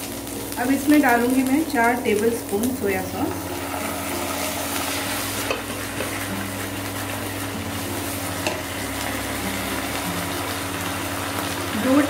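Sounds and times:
vegetables sizzling in hot oil: 0.0 - 12.0
spatula stirring: 3.4 - 12.0.

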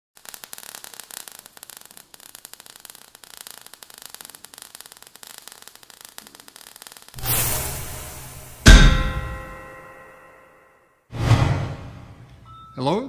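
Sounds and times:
crackling fizzing sparks: 0.2 - 9.8.

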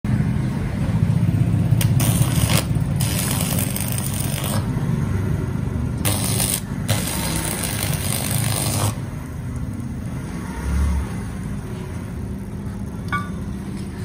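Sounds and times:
welding arc crackling: 1.7 - 4.8, 6.0 - 9.9.

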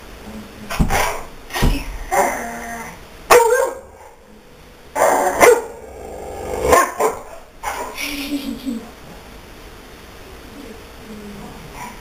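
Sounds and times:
dog barking: 3.3 - 4.2, 5.0 - 5.8, 6.7 - 8.0.

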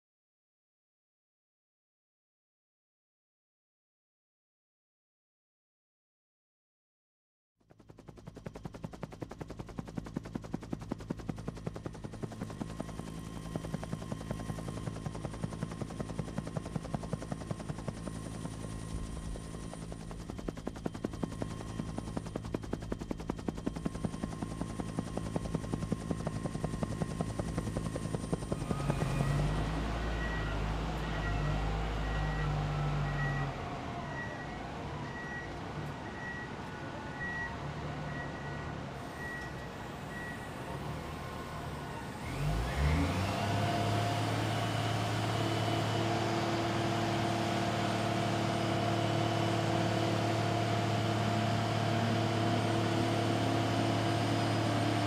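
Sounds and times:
helicopter rotor chopping: 7.7 - 32.4
heavy diesel vehicle rumbling: 28.7 - 43.0
backup alarm beeping: 28.8 - 40.6.

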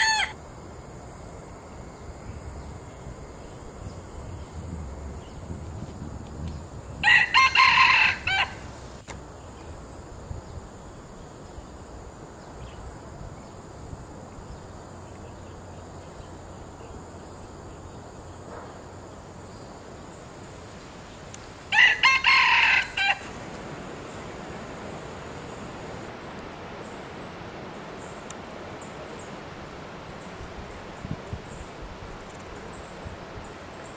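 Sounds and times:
rooster crowing: 0.0 - 0.4, 7.0 - 8.7, 21.7 - 23.4.

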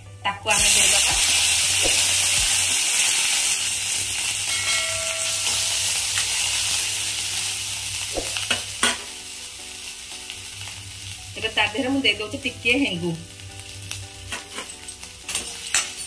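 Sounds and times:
spices sizzling in hot ghee: 0.5 - 16.0.

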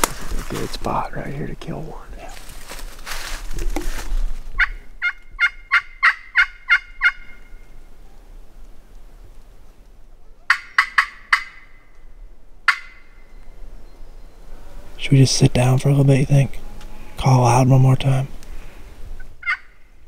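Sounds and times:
turkey call yelps: 4.6 - 7.7, 10.4 - 11.8, 12.7 - 13.3, 19.4 - 19.9.

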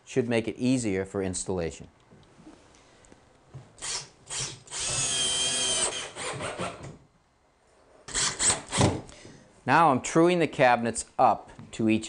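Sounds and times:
cordless drill driving screw: 3.8 - 6.9, 8.1 - 9.0.

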